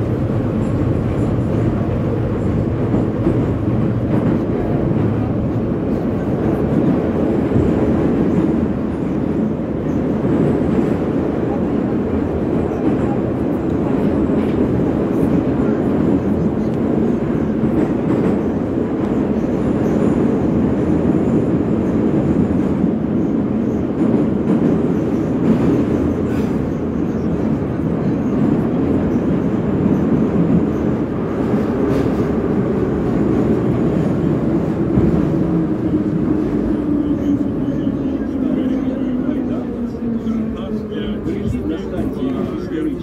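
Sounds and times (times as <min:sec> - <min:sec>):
train wheels rumbling on rails: 0:00.0 - 0:43.0.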